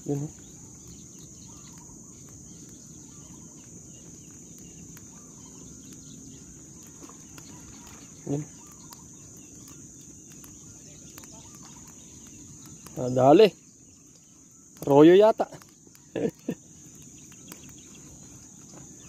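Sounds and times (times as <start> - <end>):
high-pitched insect chorus: 0.0 - 19.0.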